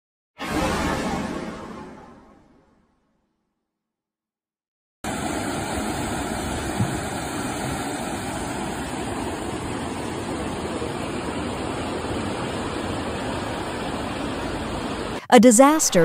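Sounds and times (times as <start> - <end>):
river rushing in flood: 5.1 - 15.2.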